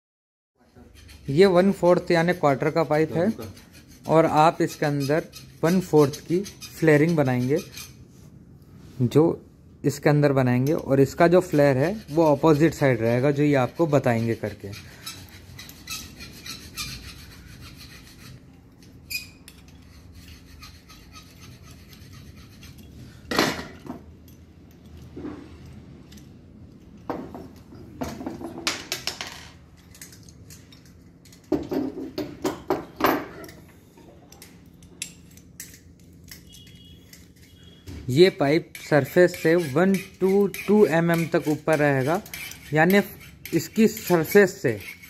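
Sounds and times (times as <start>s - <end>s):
metal clicks and scrapes: 29.6s - 31.5s, 34.3s - 45.0s.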